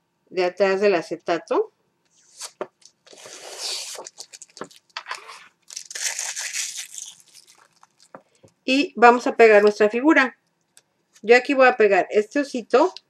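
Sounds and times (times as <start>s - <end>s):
plastic film peeling: 2.4s - 8.3s.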